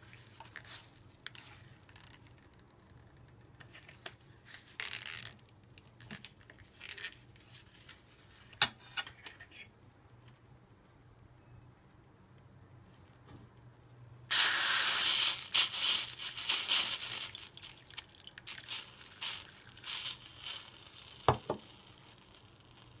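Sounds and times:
water pouring and splashing: 0:15.4 - 0:21.6.

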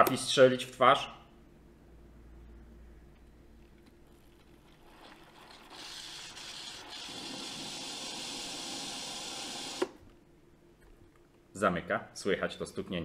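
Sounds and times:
steam hissing through milk frother: 0:04.9 - 0:10.0.

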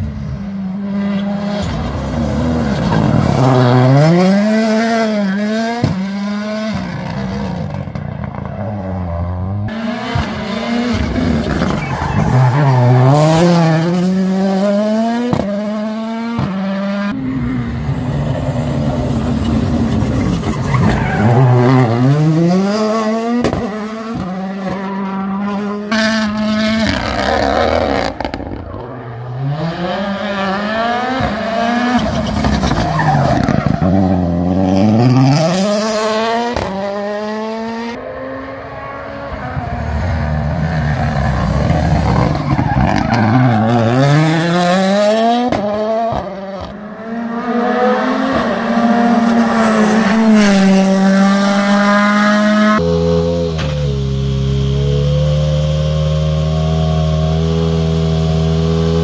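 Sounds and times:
rally car engines accelerating: 0:00.0 - 0:59.0.

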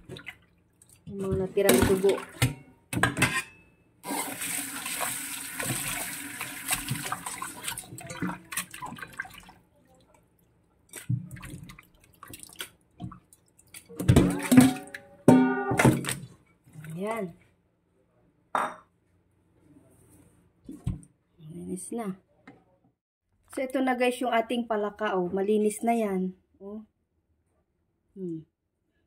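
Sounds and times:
water splashing into metal bowl: 0:04.1 - 0:10.1, 0:10.9 - 0:15.1.

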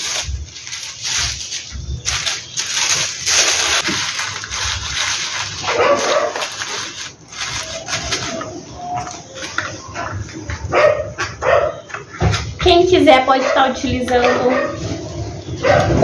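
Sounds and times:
scissors cutting paper: 0:00.0 - 0:09.6
tissue paper rustling: 0:00.0 - 0:11.3.

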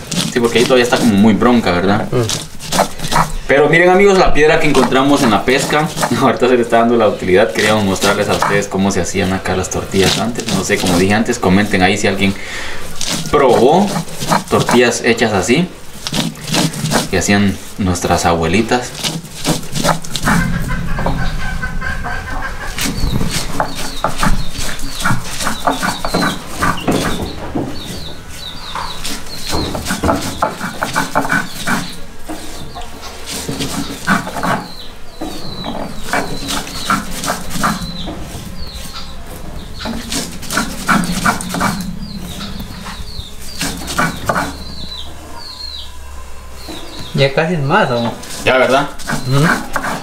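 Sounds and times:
stone scraping on stone: 0:04.6 - 0:06.8, 0:39.7 - 0:45.0, 0:48.1 - 0:50.0.

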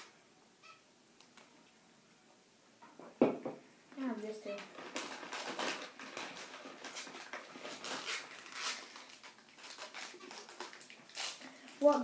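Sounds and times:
snack wrapper crinkling: 0:04.7 - 0:12.0.

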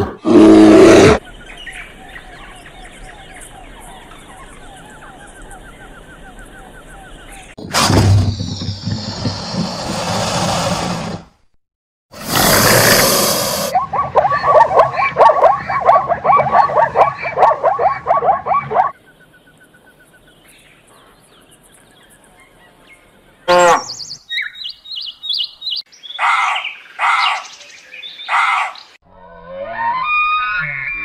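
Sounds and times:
sweeping animal call: 0:12.2 - 0:19.0.

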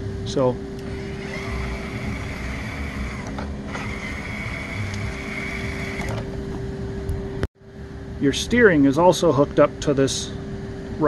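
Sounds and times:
steady motor hum: 0:00.0 - 0:11.0
electric motor whine: 0:00.8 - 0:07.2.

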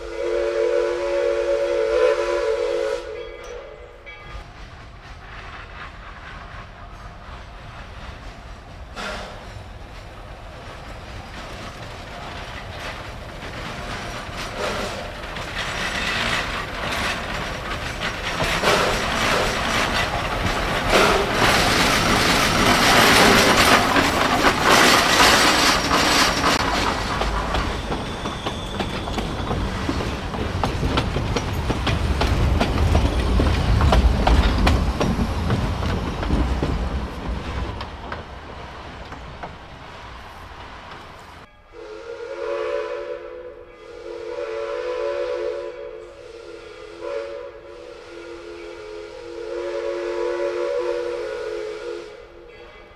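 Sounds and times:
train wheels clicking over joints: 0:03.4 - 0:41.5
wheels squealing: 0:10.8 - 0:38.1.

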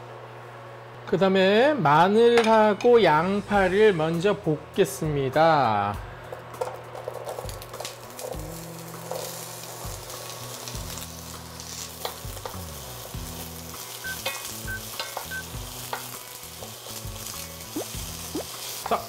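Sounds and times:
onion and garlic sizzling in oil: 0:07.0 - 0:19.0.

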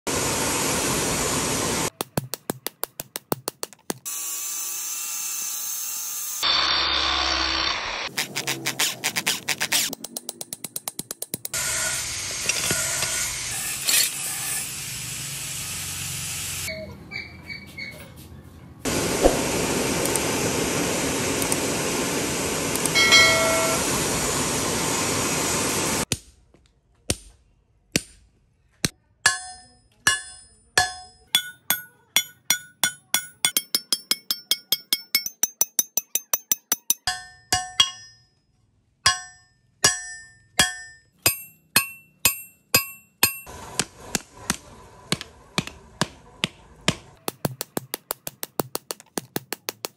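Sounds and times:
hammer striking steel on anvil: 0:22.8 - 0:23.9, 0:29.2 - 0:38.4, 0:39.0 - 0:49.9.

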